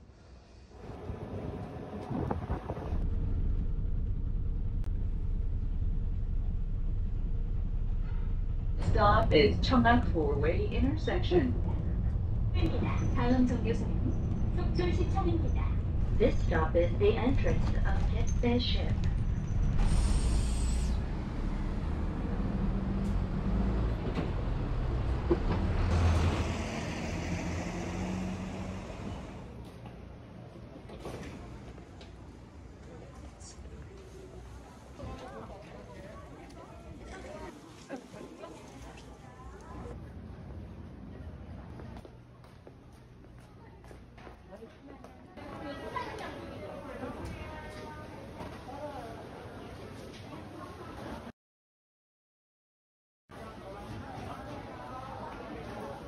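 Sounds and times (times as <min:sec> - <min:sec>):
bus engine and road rumble: 0:00.0 - 0:44.4
street noise: 0:00.0 - 0:51.3.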